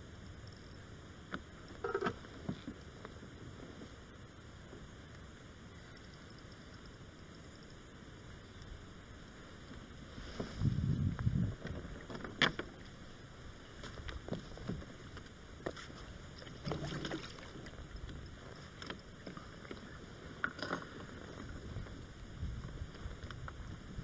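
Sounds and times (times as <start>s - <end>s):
small clicks and knocks: 16.8s - 19.8s.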